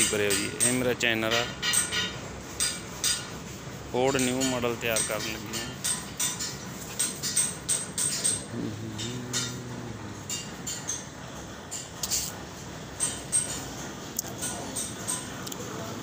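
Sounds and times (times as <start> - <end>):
low hum: 8.5 - 10.8.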